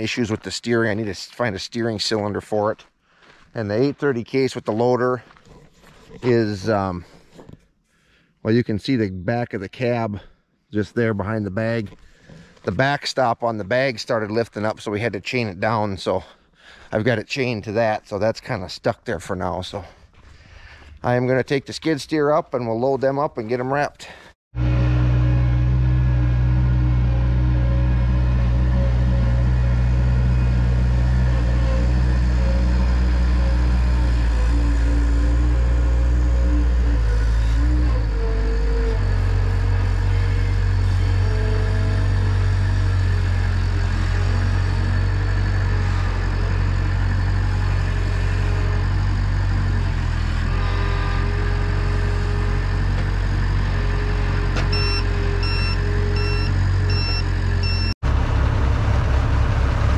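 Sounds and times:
loader engine running: 24.6 - 59.9
short beeps: 54.7 - 58.0.

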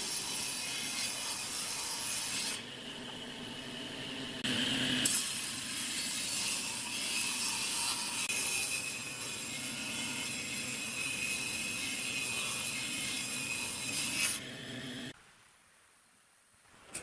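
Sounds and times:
table saw cutting wood: 0.0 - 15.1.

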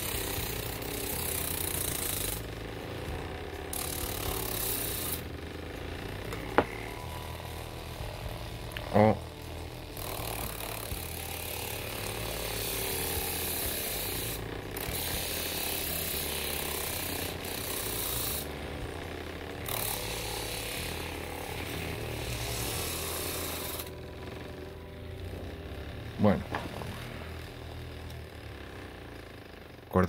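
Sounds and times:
steel rasping on sanding disc: 0.0 - 8.8, 9.6 - 24.6
sander motor hum: 0.0 - 30.0.

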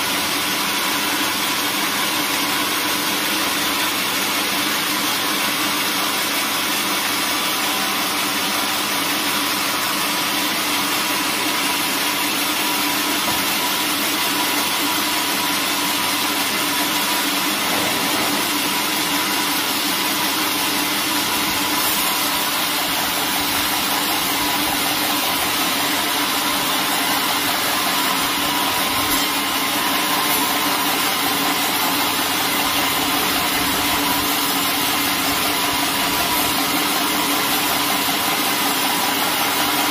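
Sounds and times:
machine hum: 13.2 - 39.8.

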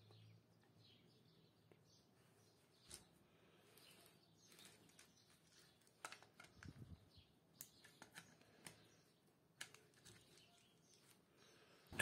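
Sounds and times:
faint clicks and taps on plastic: 5.8 - 6.9, 9.6 - 11.2.

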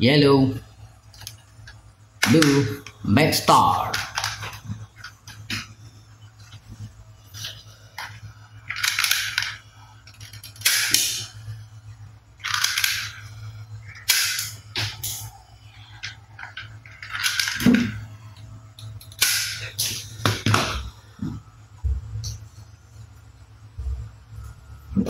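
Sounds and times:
low steady hum: 0.0 - 25.0
toy gun shooting bursts: 10.6 - 11.3.

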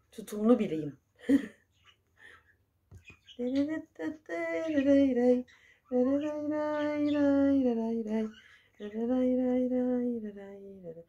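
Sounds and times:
woman singing long notes: 3.4 - 11.0.

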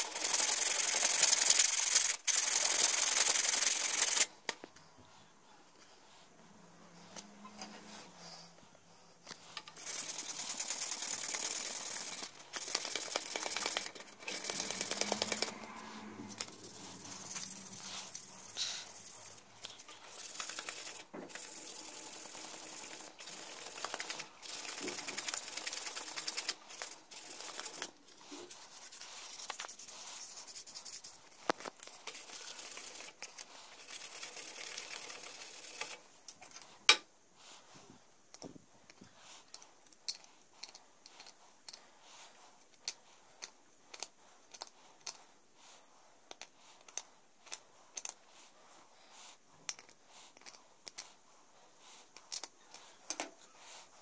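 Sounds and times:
sandpaper rasping on bone: 9.8 - 31.4.

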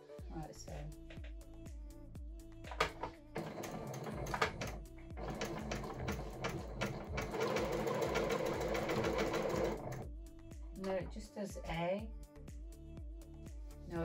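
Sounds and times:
sewing machine clicks: 2.7 - 10.0
sewing machine needle running: 2.7 - 10.1.

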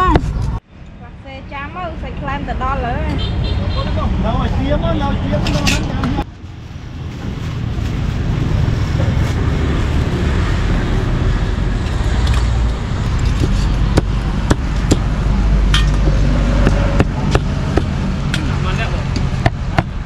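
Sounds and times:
street traffic rumble: 0.0 - 20.0
cleaver chopping meat on board: 16.6 - 17.9.

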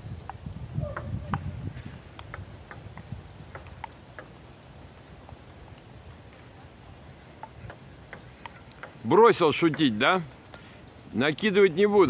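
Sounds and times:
table tennis balls clicking: 1.0 - 6.4, 7.4 - 10.6.

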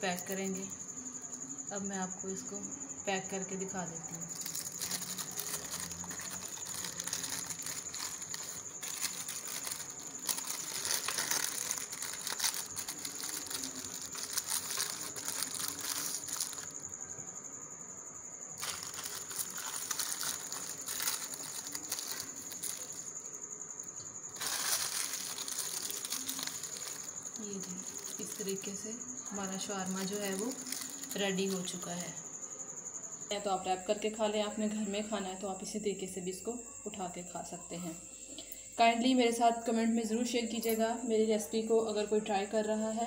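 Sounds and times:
greaseproof paper crinkling: 4.3 - 16.9, 18.6 - 23.1, 24.3 - 32.0.

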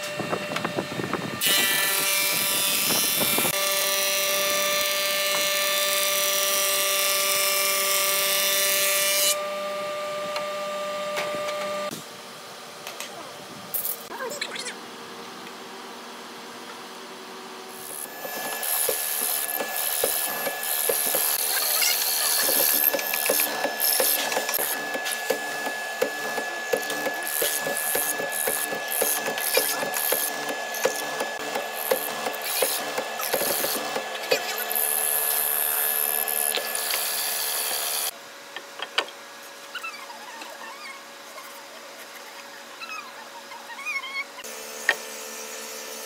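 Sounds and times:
mortising machine motor whine: 17.7 - 38.1.

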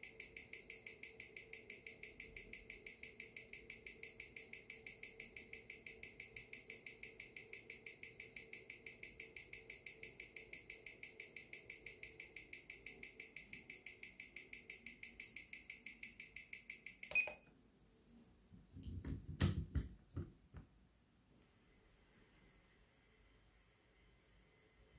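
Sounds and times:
amplified watch ticking: 0.0 - 17.4.

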